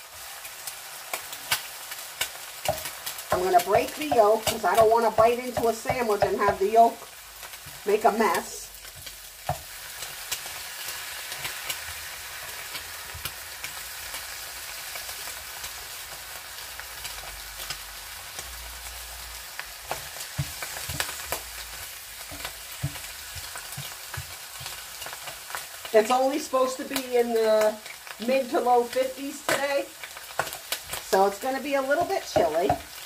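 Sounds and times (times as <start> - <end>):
egg sizzling in a pan: 0.0 - 33.0
spatula knocks and clicks: 22.2 - 25.4.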